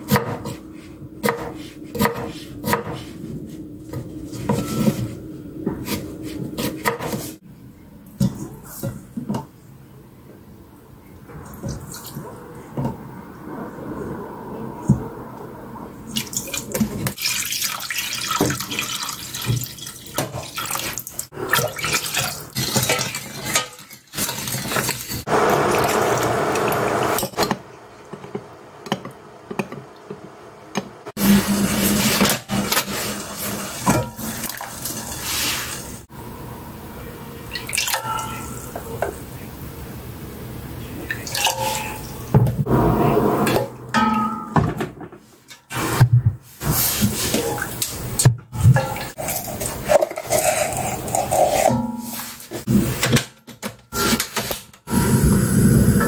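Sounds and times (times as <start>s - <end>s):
liquid pouring and sloshing: 16.1s - 26.0s, 31.8s - 36.0s, 48.6s - 52.7s.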